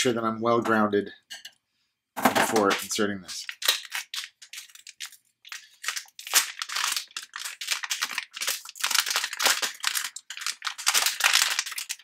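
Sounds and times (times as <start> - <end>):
plastic bag crinkling: 2.8 - 12.0.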